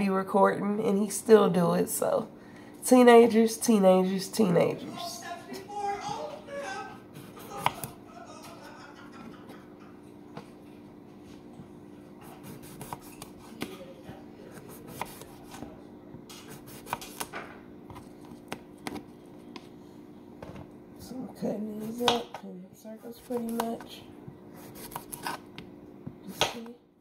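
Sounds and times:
faint steady hum: 0.0s - 27.0s
knife slicing cucumber: 7.2s - 7.9s, 12.2s - 13.7s, 14.5s - 15.6s, 16.3s - 17.3s, 24.6s - 25.6s.

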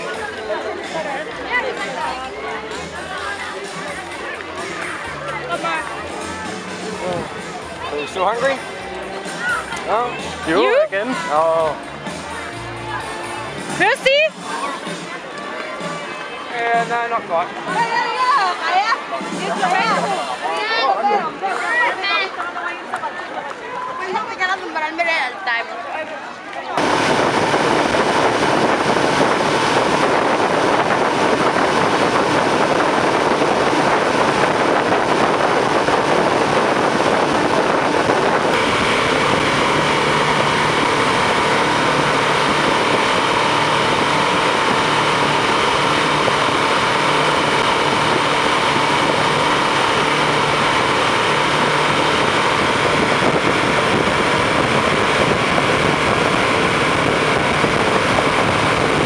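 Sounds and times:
motorboat engine: 0.0s - 14.4s, 26.8s - 59.0s
water rushing past hull: 26.8s - 59.0s
wind on microphone: 26.8s - 59.0s.

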